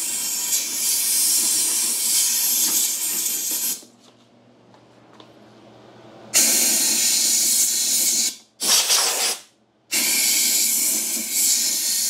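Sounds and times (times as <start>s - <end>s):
compressed air blasting: 6.3s - 12.0s.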